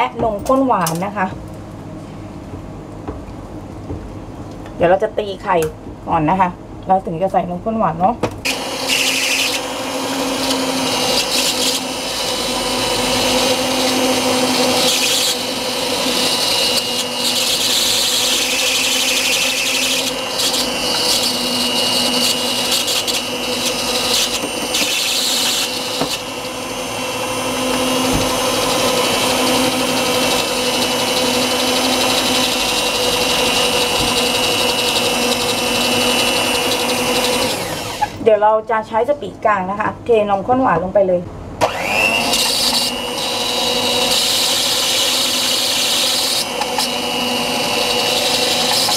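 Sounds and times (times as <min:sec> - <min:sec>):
electric hand mixer whining: 0:08.4 - 0:38.2, 0:41.6 - 0:48.9.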